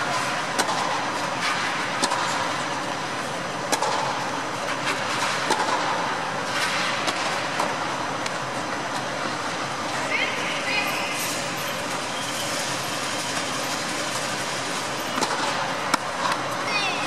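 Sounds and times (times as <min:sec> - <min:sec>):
steady rushing background noise: 0:00.0 - 0:17.0
tennis balls struck by racquets: 0:00.4 - 0:01.2, 0:01.8 - 0:02.7, 0:03.6 - 0:09.1, 0:15.2 - 0:16.5.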